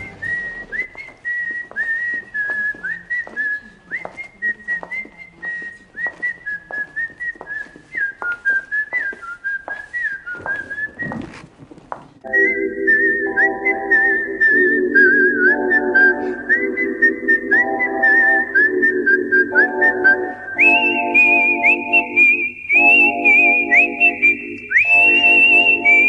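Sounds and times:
whistled melody: 0.0 - 4.4, 12.3 - 26.0.

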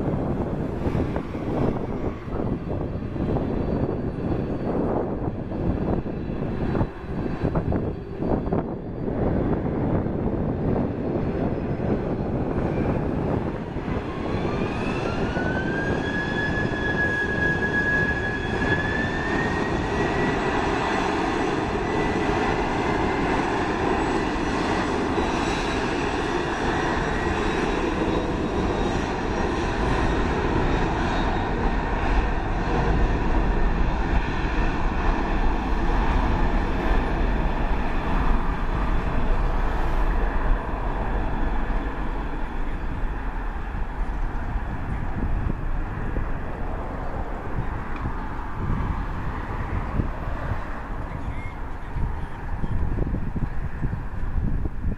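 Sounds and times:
jet engines roaring: 0.0 - 54.9
deep engine rumble: 26.8 - 54.7.

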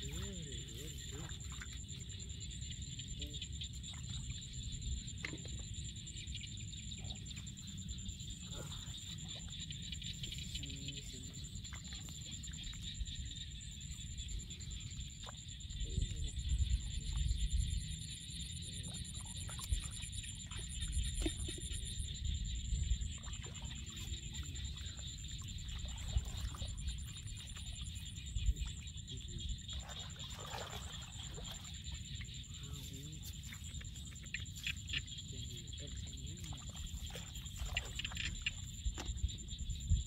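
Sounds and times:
wind rumble on microphone: 15.6 - 18.5, 19.2 - 30.0, 36.7 - 40.0.

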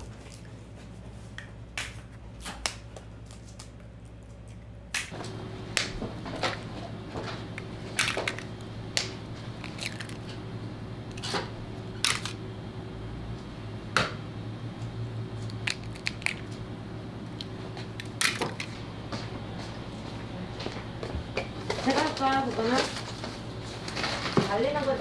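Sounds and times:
steady low hum: 0.0 - 25.0
eggshells cracking: 7.6 - 10.3, 12.0 - 12.4, 15.4 - 16.6, 17.4 - 18.7.

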